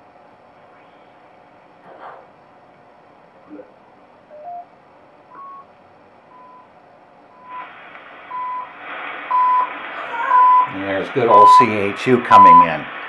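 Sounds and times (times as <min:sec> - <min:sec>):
shortwave radio hiss: 0:00.0 - 0:02.4, 0:05.2 - 0:13.0
short time signal beeps: 0:05.3 - 0:05.7, 0:11.3 - 0:11.7, 0:12.3 - 0:12.7.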